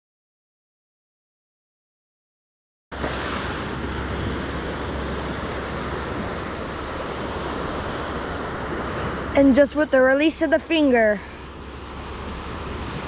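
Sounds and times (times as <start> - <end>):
surf breaking: 3.0 - 13.0.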